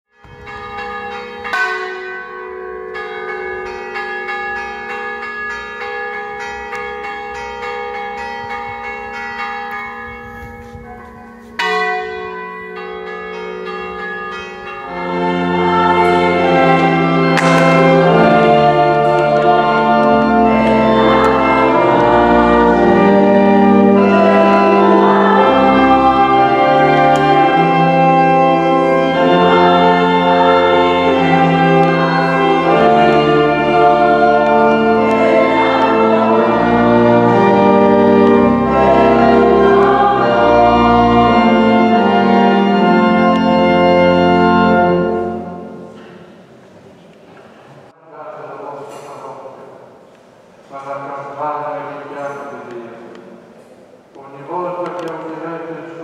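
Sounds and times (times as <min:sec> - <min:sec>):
many church bells ringing: 0:00.1 - 0:46.4
single church bell ringing: 0:00.2 - 0:36.0.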